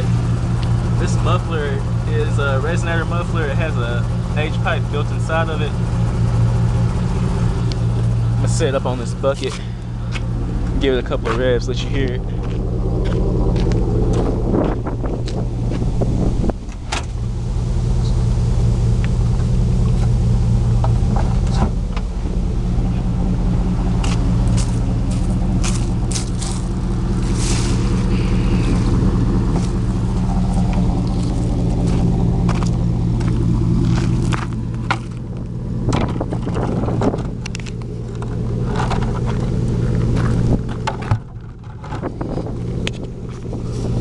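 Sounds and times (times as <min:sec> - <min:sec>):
truck engine running: 0:00.0 - 0:44.0
footsteps on leaves and gravel: 0:09.4 - 0:16.0, 0:23.8 - 0:35.4.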